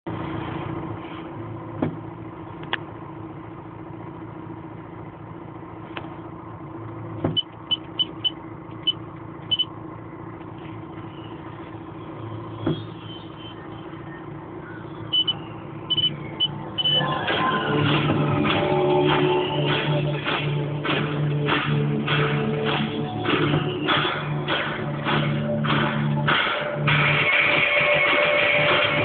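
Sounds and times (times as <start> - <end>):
diesel engine running: 0.1 - 29.0
short high-pitched tones: 12.8 - 17.3
sharp knocks: 17.9 - 26.8.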